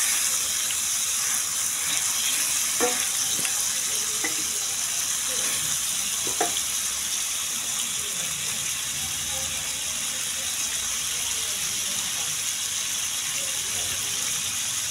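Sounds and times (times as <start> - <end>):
chicken sizzling in hot oil: 0.0 - 14.9.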